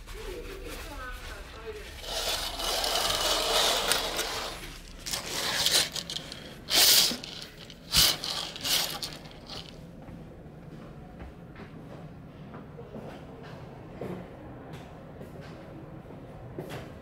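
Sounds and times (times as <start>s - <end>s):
fabric curtain rustling: 0.0s - 9.8s.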